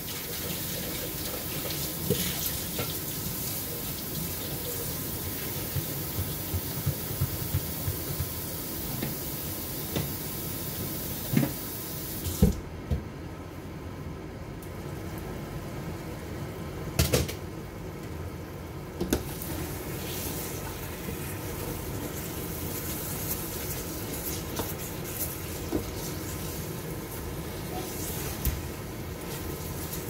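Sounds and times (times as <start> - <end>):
pot hissing on stove: 0.0 - 12.4, 19.3 - 30.0.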